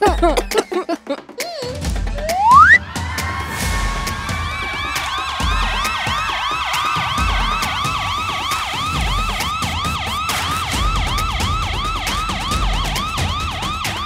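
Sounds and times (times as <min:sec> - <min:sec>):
fire engine siren yelping: 0:02.2 - 0:02.8, 0:05.8 - 0:14.0.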